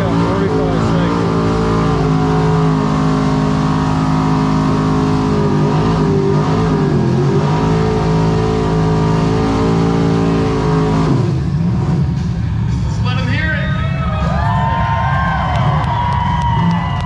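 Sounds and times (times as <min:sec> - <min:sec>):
car engine revving high: 0:00.0 - 0:12.8.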